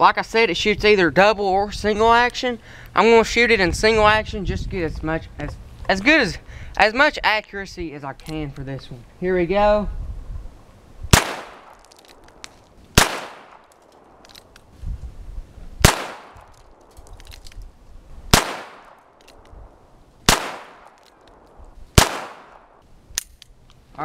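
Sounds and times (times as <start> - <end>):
revolver gunshots: 11.1 - 12.4, 13.0 - 14.2, 15.8 - 16.8, 18.3 - 19.2, 20.2 - 22.8.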